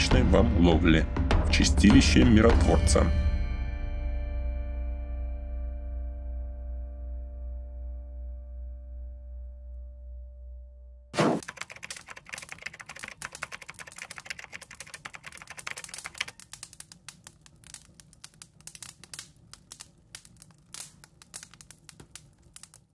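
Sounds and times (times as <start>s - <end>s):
fire crackling: 11.2s - 22.9s.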